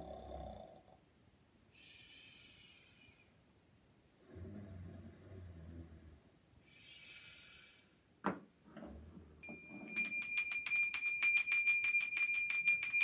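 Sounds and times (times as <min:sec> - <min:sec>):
faint breathy hiss: 0:01.6 - 0:08.2
jingle bells shaken: 0:09.4 - 0:13.0.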